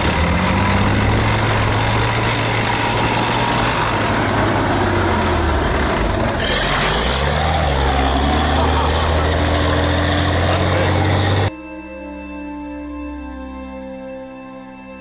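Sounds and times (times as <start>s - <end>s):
engine running under load: 0.0s - 11.5s
tracked vehicle driving past: 0.0s - 11.5s.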